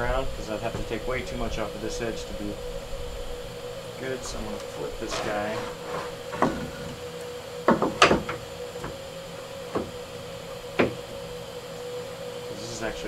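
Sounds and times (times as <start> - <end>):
steady machine hum: 0.0 - 13.0
wooden board knocks: 7.7 - 9.0.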